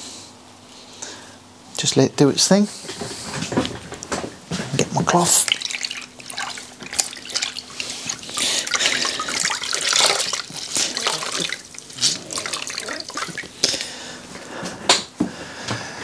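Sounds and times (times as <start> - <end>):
water splashing in bucket: 5.1 - 13.9
water trickling and dripping: 5.2 - 13.7.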